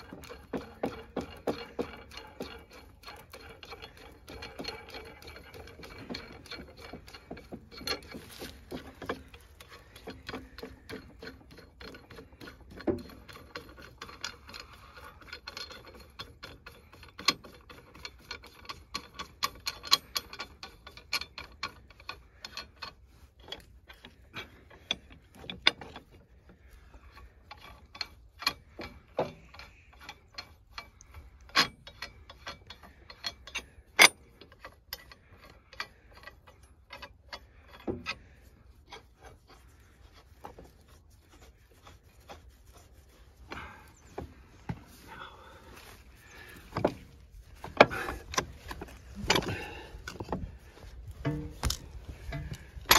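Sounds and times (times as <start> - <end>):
metallic ratchet clicking: 0.0 - 24.1, 27.4 - 38.2.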